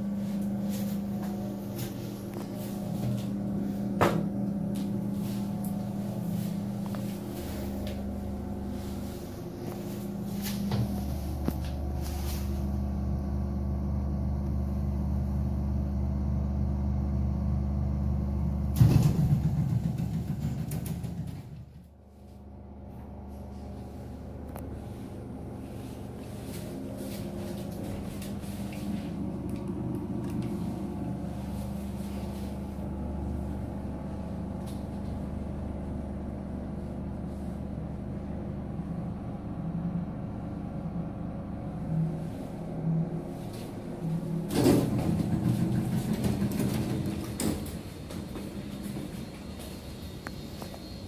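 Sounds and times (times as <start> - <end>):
lift humming and rumbling: 0.0 - 51.0
lift doors sliding: 43.4 - 50.2.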